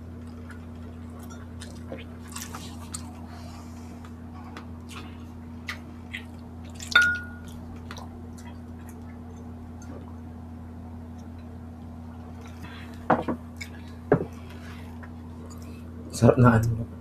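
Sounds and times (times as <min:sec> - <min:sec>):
steady low hum: 0:00.0 - 0:17.0
glass mugs clinking: 0:06.9 - 0:07.5.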